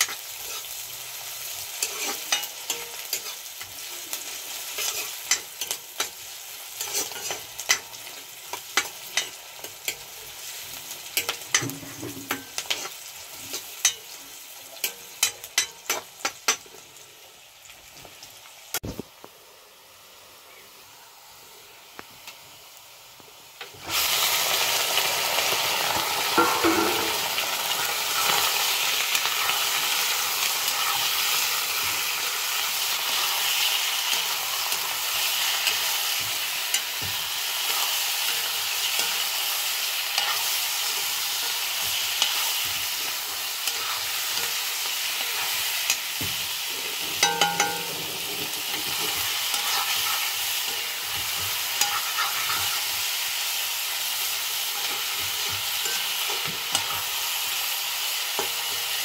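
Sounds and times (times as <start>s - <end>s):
spatula scraping a pan: 0.0s - 14.2s, 26.3s - 53.2s
chicken sizzling in hot oil: 0.0s - 59.0s.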